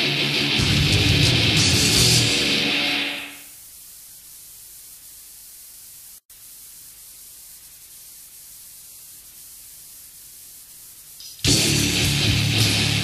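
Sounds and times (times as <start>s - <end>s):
death metal song: 0.0s - 3.4s, 11.5s - 13.0s
tape hiss: 0.0s - 13.0s.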